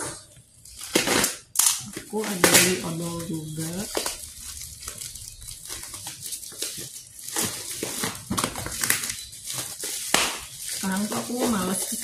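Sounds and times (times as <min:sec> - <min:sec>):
plastic bag rustling and crinkling: 0:00.0 - 0:12.0.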